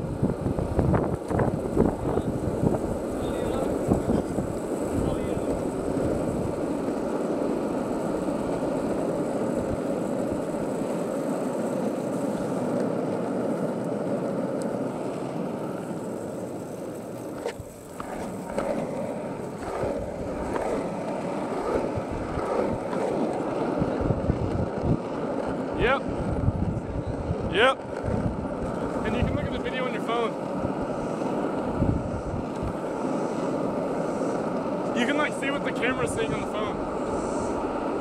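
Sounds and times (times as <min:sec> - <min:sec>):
skateboard wheels rolling on asphalt: 0:00.0 - 0:38.0
skateboard clacks and knocks: 0:00.3 - 0:26.5.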